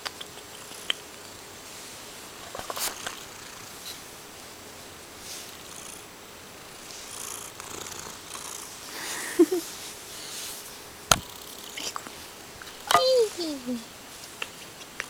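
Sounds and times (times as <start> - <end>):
cat purring: 2.4 - 13.8
fur brushing over microphone: 6.8 - 7.2, 9.6 - 10.9.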